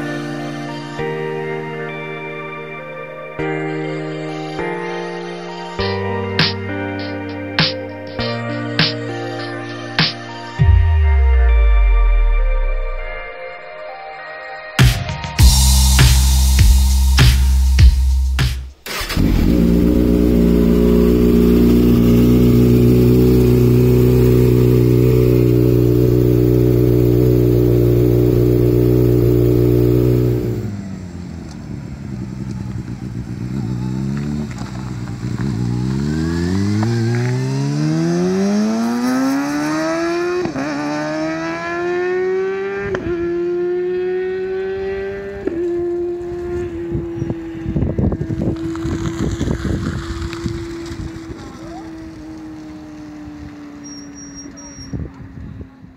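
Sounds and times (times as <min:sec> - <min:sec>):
motorcycle engine revving: 0:18.9 - 0:55.1.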